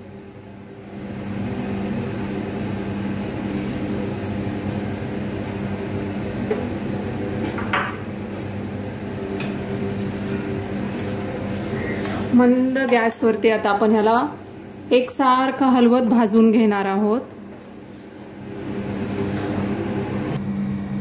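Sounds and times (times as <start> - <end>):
semolina frying in fat: 0.0 - 15.8.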